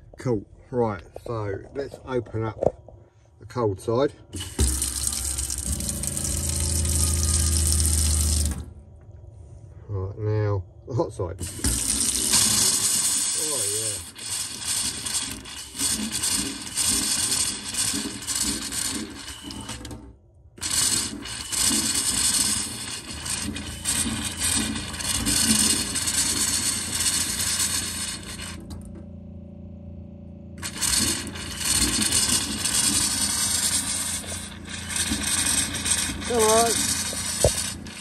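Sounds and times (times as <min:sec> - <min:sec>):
pressure pump humming: 0:04.2 - 0:09.3, 0:11.4 - 0:38.0
water and air spluttering from tap: 0:04.3 - 0:08.8, 0:11.4 - 0:20.0, 0:20.6 - 0:28.8, 0:30.6 - 0:38.0.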